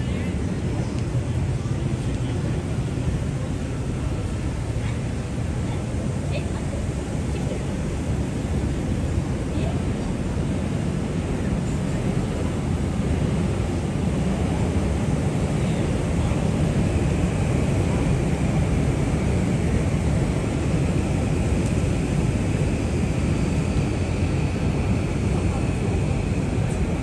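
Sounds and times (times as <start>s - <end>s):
low traffic rumble: 0.0s - 27.0s.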